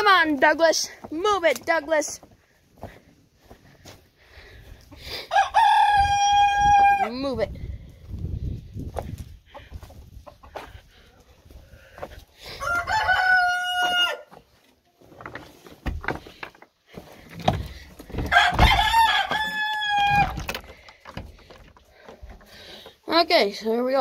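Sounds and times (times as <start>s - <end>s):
rooster crowing: 5.3s - 7.1s, 12.6s - 14.3s, 18.3s - 20.4s
scuffs and knocks: 14.3s - 23.0s.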